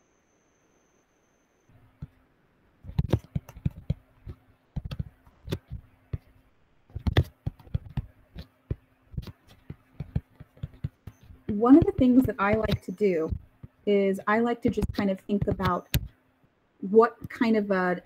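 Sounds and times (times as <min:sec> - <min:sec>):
stylus tapping on tablet screen: 0:02.0 - 0:02.2, 0:02.8 - 0:16.2.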